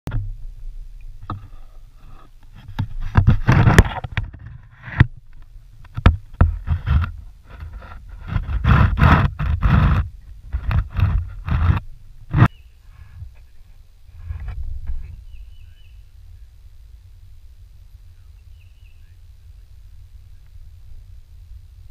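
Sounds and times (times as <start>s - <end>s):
manatee rubbing against plastic hull: 1.1s - 15.6s.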